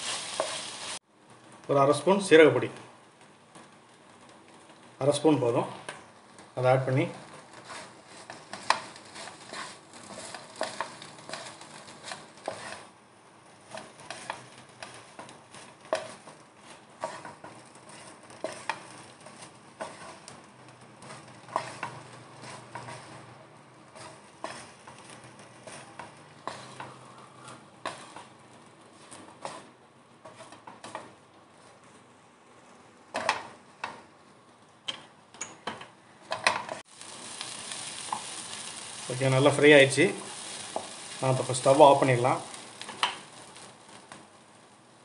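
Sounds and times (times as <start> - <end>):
wooden spatula scraping a pan: 0.0 - 1.0, 6.9 - 13.0, 13.6 - 31.8, 36.4 - 44.2
faint frying sizzle: 0.0 - 34.8, 36.1 - 45.0.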